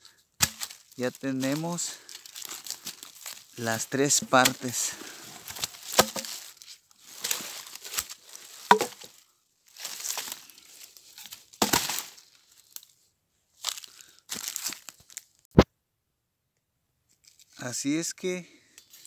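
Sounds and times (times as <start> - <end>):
twigs snapping: 0.4 - 9.2, 9.8 - 12.9, 13.6 - 15.3
footsteps crunching through dry leaves: 0.4 - 12.9, 13.6 - 15.4.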